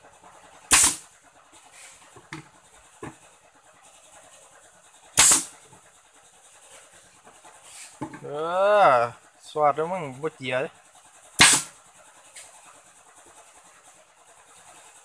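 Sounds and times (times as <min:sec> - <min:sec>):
nail gun firing: 0:00.7 - 0:01.0, 0:05.2 - 0:05.5, 0:11.4 - 0:11.8.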